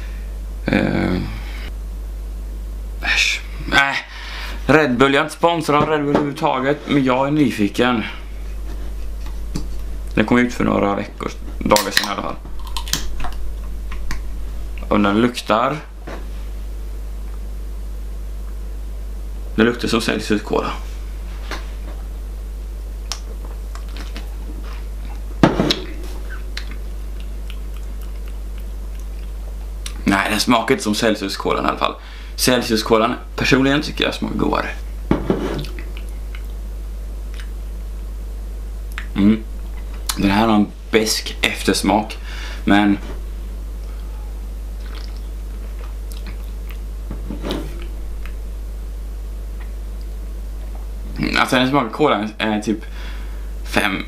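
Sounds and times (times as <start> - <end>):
steady low hum: 0.0 - 54.0
person sipping and swallowing: 12.5 - 14.9, 25.9 - 30.0, 44.7 - 46.9.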